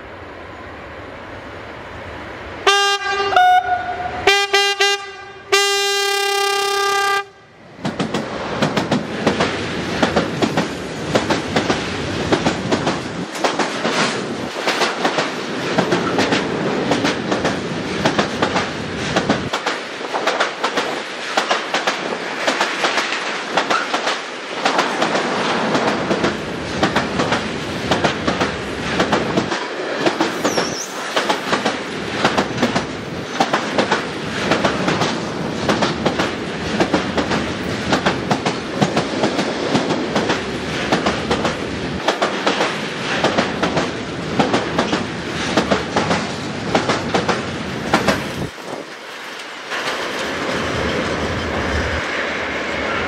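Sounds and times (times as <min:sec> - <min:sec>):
locomotive horn blasts: 0:02.7 - 0:07.5
train wheels clattering over rail joints: 0:07.8 - 0:52.1.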